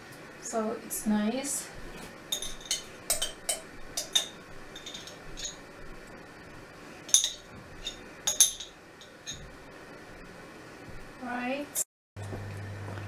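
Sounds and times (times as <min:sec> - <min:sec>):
teaspoon clinking against glass jar: 0:02.3 - 0:05.6, 0:07.1 - 0:09.4.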